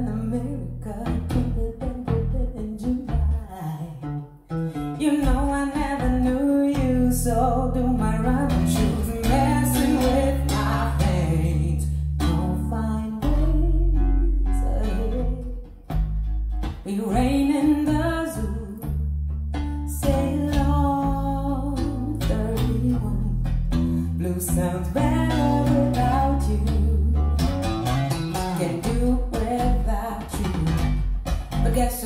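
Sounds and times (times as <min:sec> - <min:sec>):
song with guitar and deep bass: 0:00.0 - 0:32.0.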